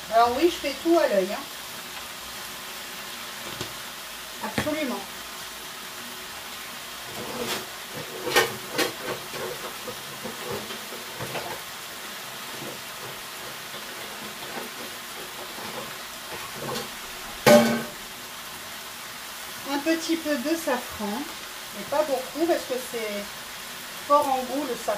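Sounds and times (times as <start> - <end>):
vegetables sizzling in a pot: 0.0 - 24.9.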